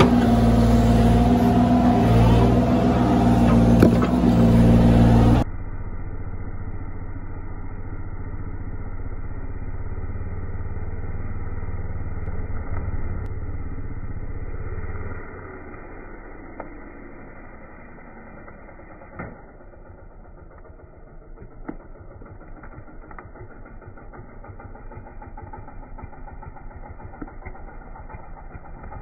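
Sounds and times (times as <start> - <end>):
muffled chainsaw cutting wood: 0.0 - 5.4, 17.8 - 29.0
excavator engine running: 0.0 - 29.0.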